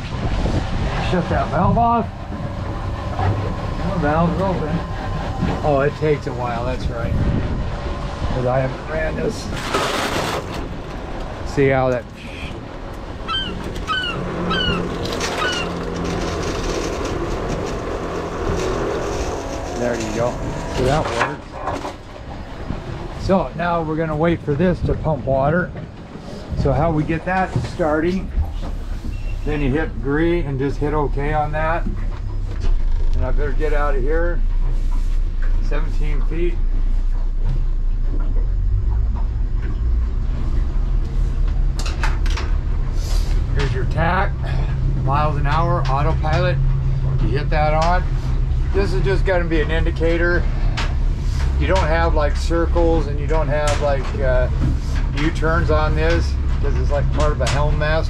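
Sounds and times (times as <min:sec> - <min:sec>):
low pump hum: 0:00.0 - 0:09.4, 0:10.2 - 0:58.0
hull rumble: 0:00.0 - 0:58.0
outboard motor droning: 0:00.0 - 0:58.0
bird chirping: 0:13.2 - 0:15.8.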